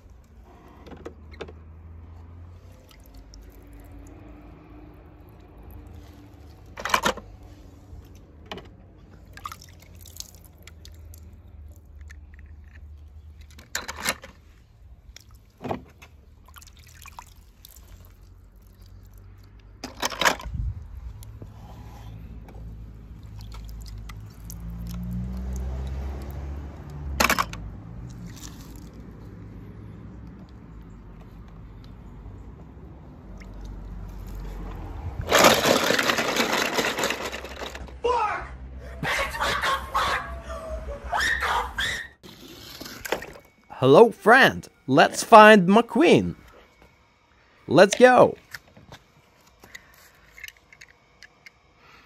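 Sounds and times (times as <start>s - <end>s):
water dripping and splashing: 2.7s - 4.2s, 9.3s - 12.4s, 15.1s - 15.6s, 16.3s - 19.6s, 23.2s - 26.4s, 28.0s - 29.1s
clicks of small metal toy cars: 27.2s - 27.6s, 35.3s - 38.0s.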